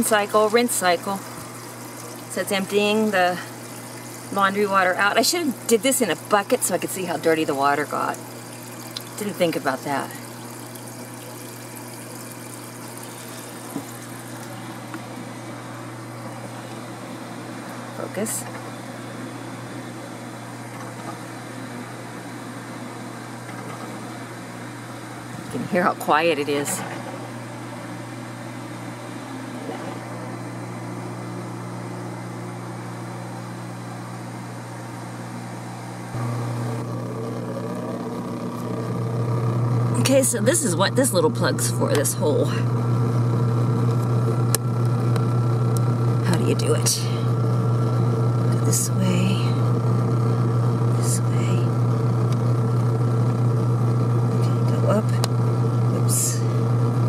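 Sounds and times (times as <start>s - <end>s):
water pumped through drain hose: 0.0s - 17.0s
drain pump humming: 0.0s - 57.0s.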